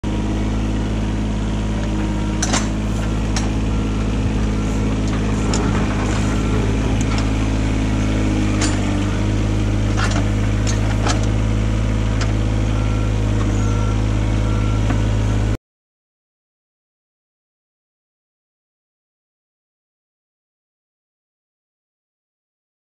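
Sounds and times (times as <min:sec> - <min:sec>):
excavator diesel engine running: 0:00.0 - 0:15.6
metallic clanks: 0:02.4 - 0:03.6, 0:05.0 - 0:07.5, 0:08.4 - 0:09.1.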